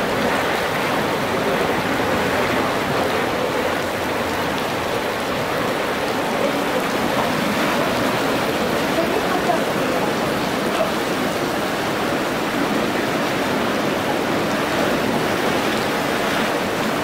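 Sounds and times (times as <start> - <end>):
heavy rain on pavement: 0.0 - 17.0
storm water rushing from drains: 0.0 - 17.0.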